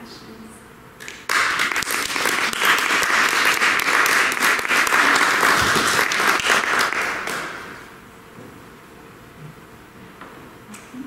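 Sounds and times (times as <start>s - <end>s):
audience applauding: 1.0s - 7.9s.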